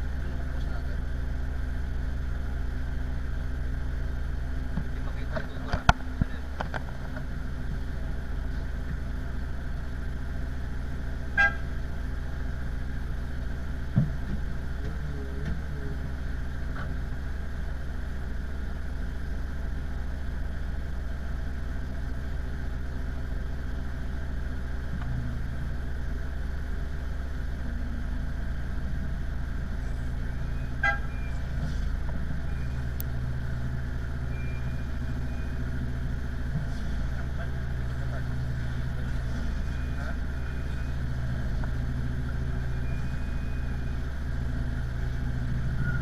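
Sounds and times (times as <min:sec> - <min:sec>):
tug engine idling: 0:00.0 - 0:46.0
brief beep: 0:32.5 - 0:32.9, 0:34.3 - 0:35.6, 0:39.6 - 0:41.0, 0:42.7 - 0:43.9.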